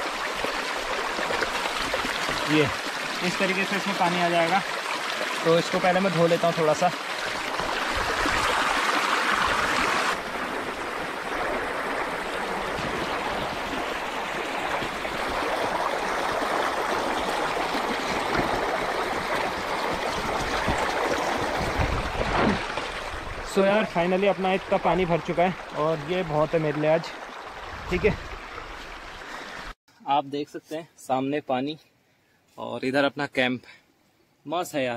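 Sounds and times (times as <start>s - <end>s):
bright rushing water: 0.0s - 29.8s
river water flowing over stones: 0.0s - 29.8s.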